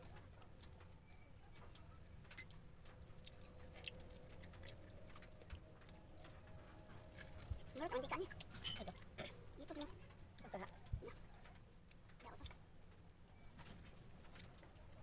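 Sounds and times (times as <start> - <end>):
crunching of someone eating: 2.3 - 6.3.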